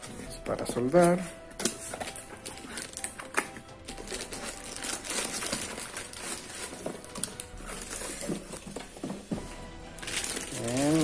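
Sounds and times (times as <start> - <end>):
plastic wrapping crinkling: 0.0 - 11.0
cardboard flaps rustling and scraping: 5.4 - 11.0.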